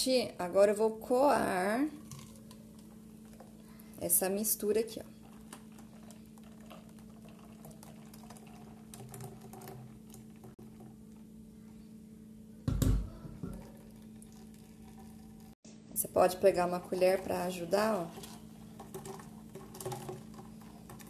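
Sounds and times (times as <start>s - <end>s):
faint steady hum: 0.0s - 21.0s
liquid trickling through sieve: 2.0s - 3.7s, 5.0s - 11.3s, 13.5s - 15.6s, 17.8s - 21.0s
blender jar thump on counter: 12.7s - 13.6s.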